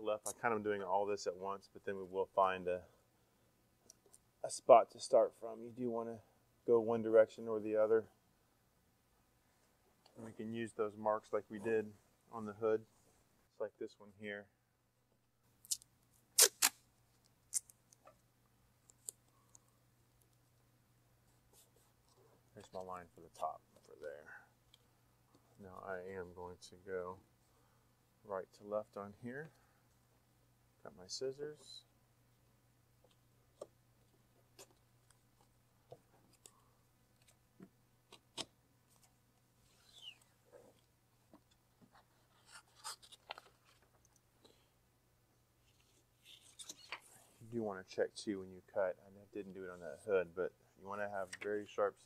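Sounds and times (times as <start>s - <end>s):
paper backing peeled off: 42.3s - 43.8s.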